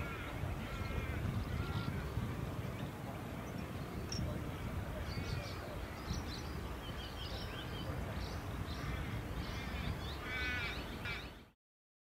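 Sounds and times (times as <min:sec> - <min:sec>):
harsh crow-like call: 0:00.0 - 0:02.1, 0:08.7 - 0:11.3
wind rumble on microphone: 0:00.0 - 0:11.5
birds chirping: 0:00.0 - 0:11.6.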